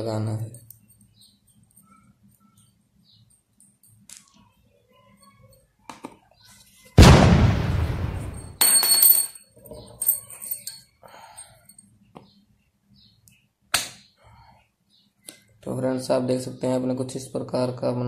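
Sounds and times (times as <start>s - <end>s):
loud ringing bang: 7.0s - 9.0s
light clinks and knocks: 8.6s - 11.9s.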